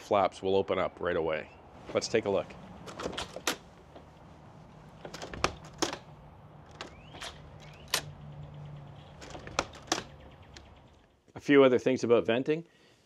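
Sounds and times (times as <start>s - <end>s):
vent flaps clacking: 4.8s - 8.2s, 8.9s - 10.8s.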